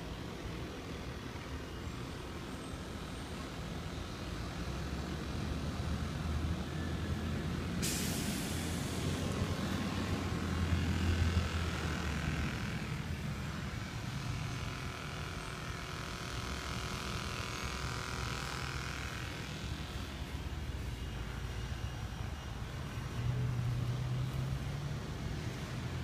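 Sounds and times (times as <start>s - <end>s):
low mechanical hum: 0.0s - 26.0s
hiss: 7.8s - 10.4s.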